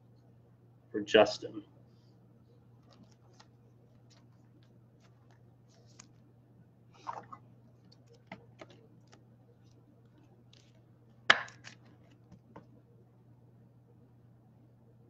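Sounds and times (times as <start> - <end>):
faint steady hum: 0.0 - 15.0
cards clicking and tapping on table: 11.3 - 12.6.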